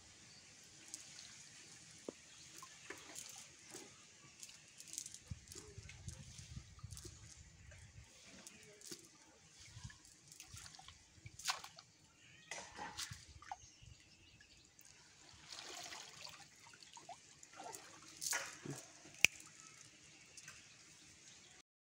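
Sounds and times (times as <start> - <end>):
water splashing and dripping: 0.4 - 21.5.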